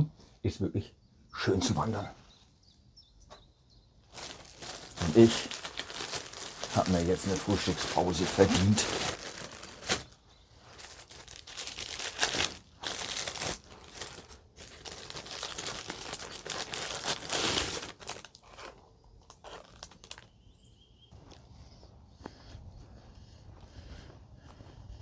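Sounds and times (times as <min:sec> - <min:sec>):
plastic packaging crinkling: 0:04.1 - 0:20.4.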